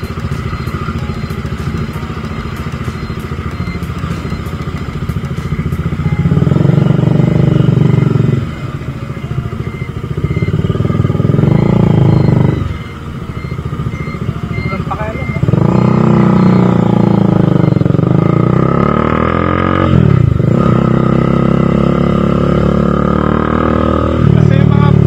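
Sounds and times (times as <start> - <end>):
motorcycle engine pulling hard: 9.5 - 25.0.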